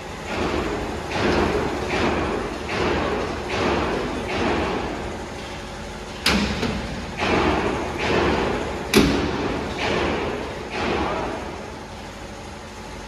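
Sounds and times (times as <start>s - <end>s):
sharp knocks: 0.3s - 5.0s, 6.2s - 11.4s.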